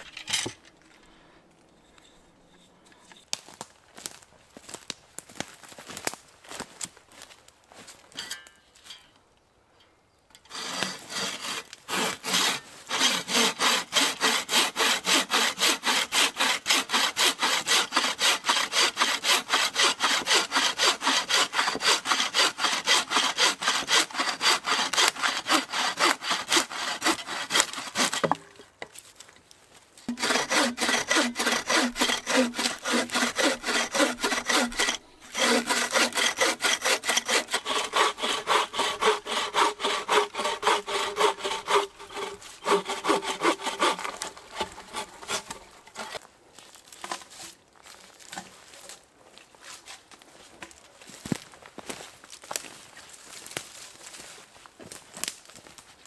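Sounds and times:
hand saw cutting log: 10.5s - 28.6s, 30.1s - 46.2s.

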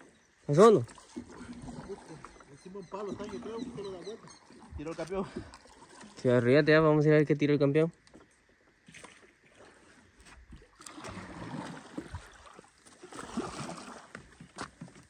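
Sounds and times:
paddle splashing water: 0.0s - 6.8s, 8.0s - 15.0s
paddle knocking canoe: 0.5s - 6.9s, 10.2s - 15.0s.

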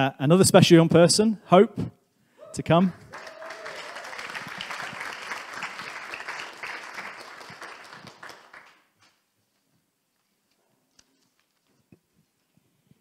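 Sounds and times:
congregation applauding: 2.9s - 9.0s.

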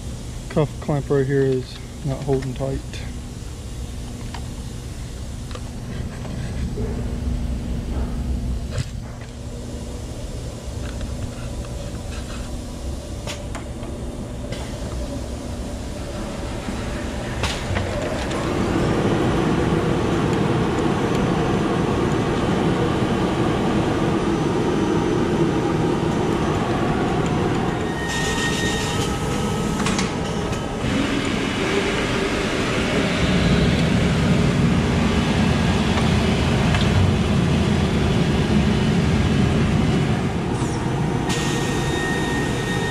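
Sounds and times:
shirt pressing machine running: 12.9s - 42.9s
steam hiss: 40.6s - 42.9s.

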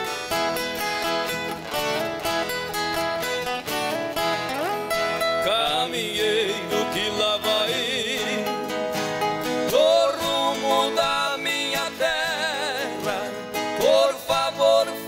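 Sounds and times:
nylon-string acoustic guitars: 0.0s - 15.0s
person singing: 5.1s - 15.0s.

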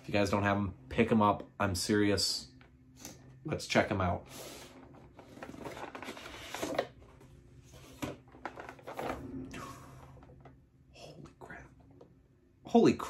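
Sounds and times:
cardboard rustling and scraping: 4.6s - 9.4s.

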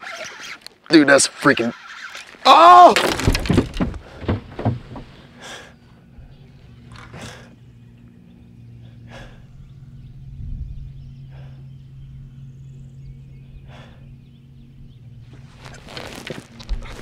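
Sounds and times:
steady low hum: 3.8s - 17.0s
man breathing out heavily: 5.2s - 6.4s, 7.0s - 7.6s, 8.7s - 9.8s, 11.2s - 11.9s, 13.5s - 14.3s.

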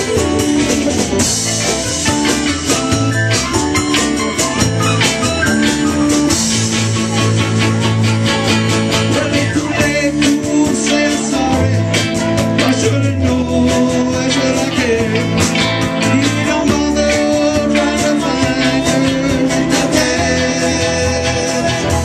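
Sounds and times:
bass: 0.0s - 22.0s
drum kit: 0.0s - 22.0s
guitars: 0.0s - 22.0s
lead vocal singing: 8.9s - 22.0s.

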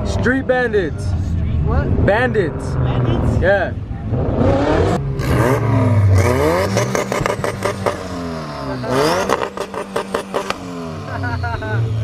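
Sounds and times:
car engine revving: 0.0s - 12.0s
sharp exhaust pops: 6.2s - 8.2s.

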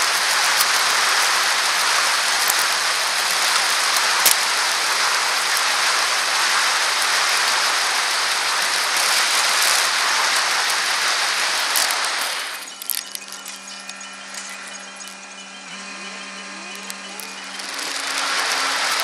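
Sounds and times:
tyre noise on asphalt: 0.0s - 13.4s
wind hiss on microphone: 0.0s - 15.0s.

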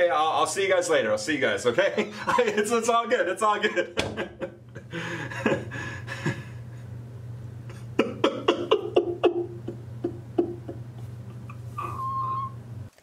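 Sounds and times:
steady low hum: 0.0s - 13.0s
man laughing: 1.8s - 2.8s, 3.4s - 6.7s, 7.7s - 11.6s.

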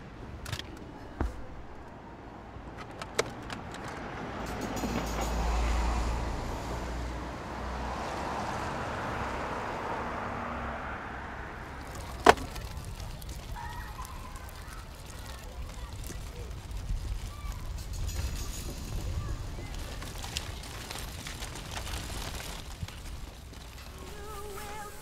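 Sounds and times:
vehicle passing: 1.8s - 16.8s.

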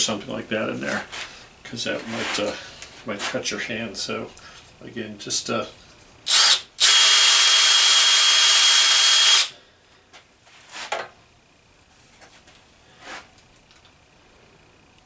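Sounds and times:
faint handling sounds: 0.7s - 4.8s, 11.8s - 14.0s
cordless drill running: 6.3s - 9.6s.

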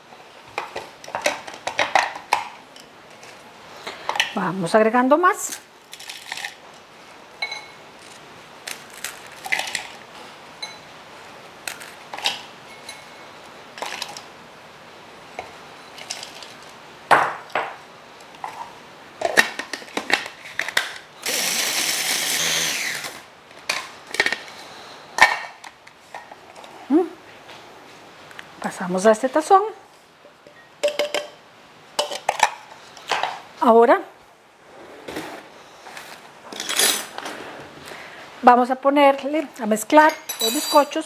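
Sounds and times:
food processor grinding: 21.2s - 23.2s.

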